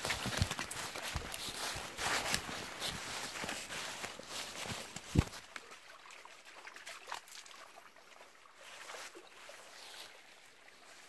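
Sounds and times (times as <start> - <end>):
small crackles: 0.0 - 5.7
water trickling in a channel: 0.0 - 11.0.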